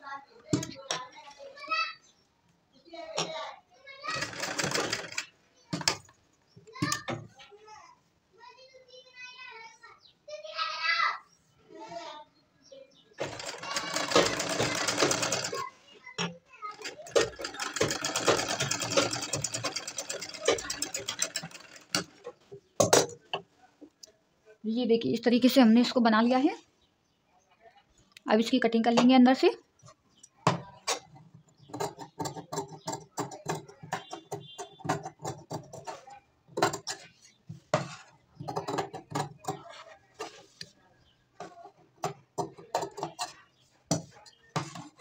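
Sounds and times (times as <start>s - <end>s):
sewing machine stitching: 4.1s - 6.0s, 13.2s - 15.7s, 16.7s - 22.4s.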